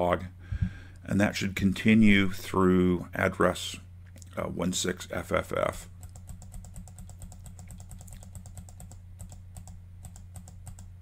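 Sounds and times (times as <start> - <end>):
steady low hum: 0.0 - 11.0
computer keyboard keys clicking: 6.0 - 10.9.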